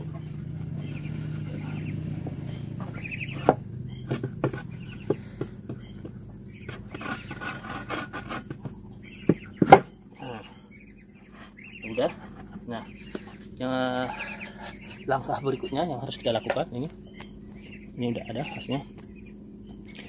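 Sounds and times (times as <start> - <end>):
wooden knocks and bumps: 0.0 - 10.0
chirping animal calls: 0.0 - 20.0.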